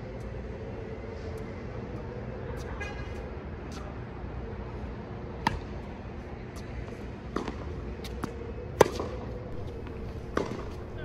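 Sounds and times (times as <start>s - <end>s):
steady background hum: 0.0s - 11.0s
tennis balls hit by racquets: 5.4s - 5.9s, 7.2s - 11.0s
tennis balls bouncing on hard court: 7.3s - 11.0s.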